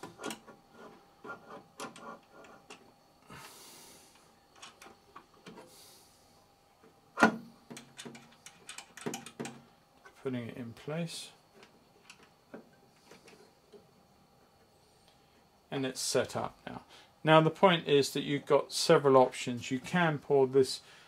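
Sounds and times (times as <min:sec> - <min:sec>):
handling clicks and knocks: 0:07.2 - 0:10.2.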